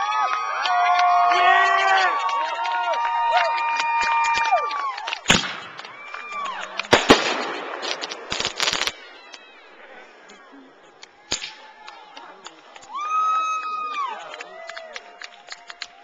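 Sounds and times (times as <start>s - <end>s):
fireworks crackling: 1.9s - 16.0s
fireworks bangs: 3.8s - 12.8s.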